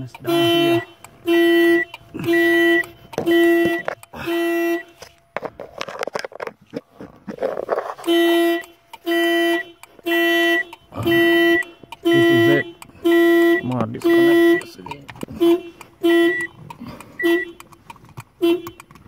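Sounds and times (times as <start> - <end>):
car alarm horn blasts: 0.0 - 5.2, 8.0 - 17.7, 18.4 - 19.0
rustling and handling noise: 4.8 - 9.0.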